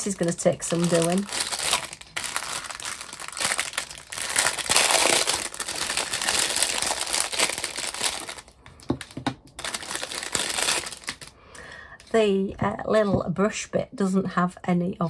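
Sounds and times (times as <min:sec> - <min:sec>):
packaging crinkling: 0:00.0 - 0:11.4.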